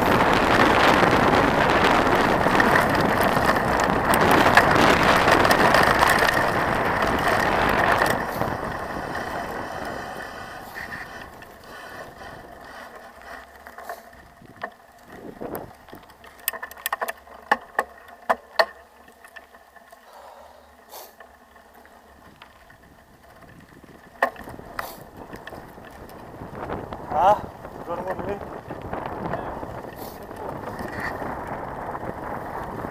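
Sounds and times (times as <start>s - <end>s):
wind noise: 0.0s - 16.2s, 22.2s - 32.9s
bike clicking and rattling: 0.0s - 32.9s
bike tyres rolling on gravel: 0.0s - 32.9s.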